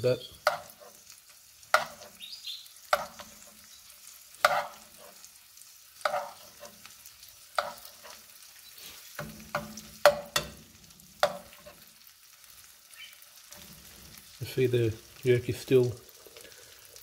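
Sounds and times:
butter sizzling: 0.0 - 17.0
metal spoon scraping frying pan: 0.4 - 1.1, 1.7 - 2.2, 2.9 - 3.7, 4.4 - 5.3, 6.0 - 10.6, 11.2 - 11.9.

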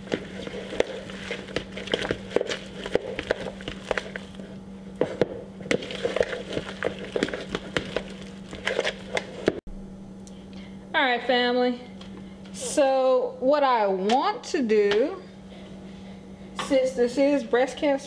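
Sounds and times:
hand squishing wet filling: 0.0 - 9.6
faint steady hum: 0.0 - 18.0.

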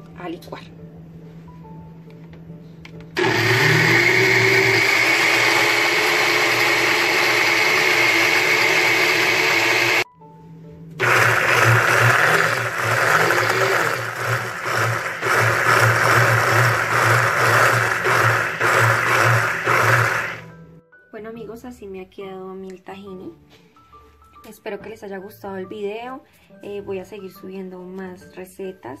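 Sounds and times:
blender motor grinding: 3.2 - 10.1, 11.0 - 20.4.

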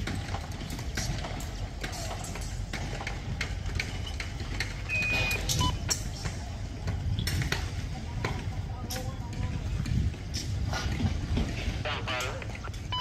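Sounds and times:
high beep: 4.9 - 5.8.

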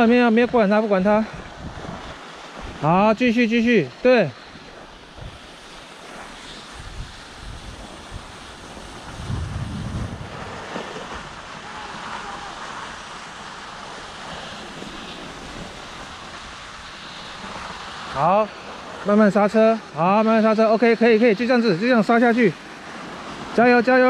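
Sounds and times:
wind buffeting microphone: 0.0 - 3.0, 4.6 - 17.9
skis sliding over snow: 2.1 - 24.0.

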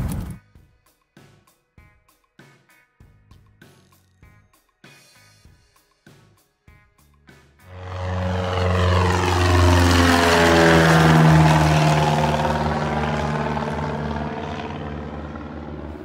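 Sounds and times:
propeller airplane passing overhead: 7.6 - 16.0.

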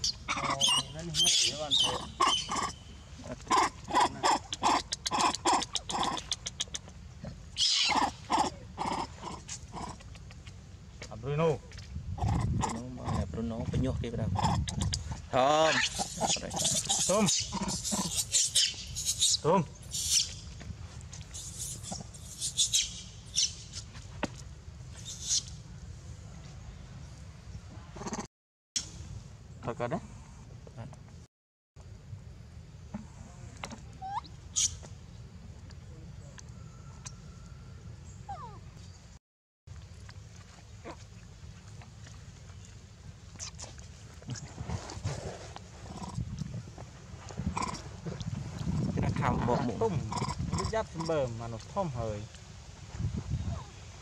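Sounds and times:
harsh falling monkey call: 0.0 - 6.7, 7.6 - 10.0, 15.6 - 20.4
macaques calling: 0.0 - 6.9, 7.6 - 10.2, 14.4 - 20.4, 21.4 - 23.8.

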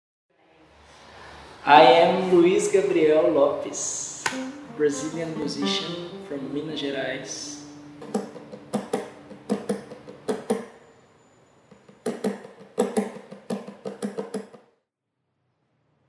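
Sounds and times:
hands slapping acoustic guitar body: 8.0 - 10.7, 12.0 - 14.6.

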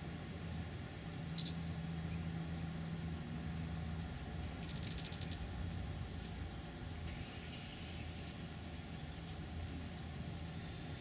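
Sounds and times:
steady low hum: 0.0 - 11.0
bird chip calls: 1.4 - 1.7
bird twittering: 1.4 - 1.7.

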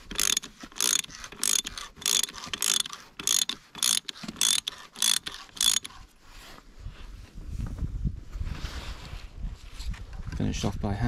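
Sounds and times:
ratchet wrench clicking: 0.0 - 6.0.

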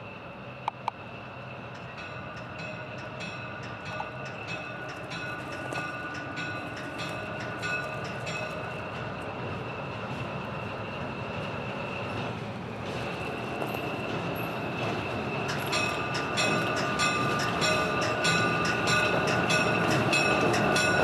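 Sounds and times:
locomotive bell ringing: 1.6 - 9.9, 13.2 - 21.0.

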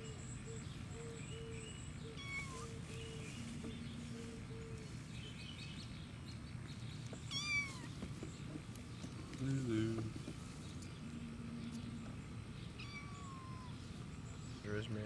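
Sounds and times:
kitten meowing: 2.2 - 2.7, 7.3 - 8.0, 12.8 - 13.8.

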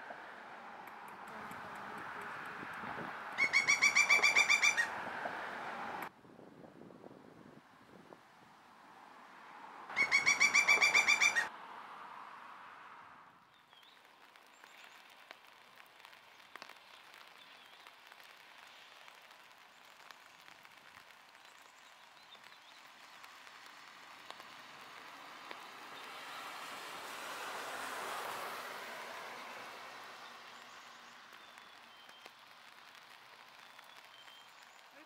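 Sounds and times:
distant bird chirps: 3.3 - 4.9, 9.9 - 11.5
woodpecker calling: 3.3 - 4.9, 9.9 - 11.5.

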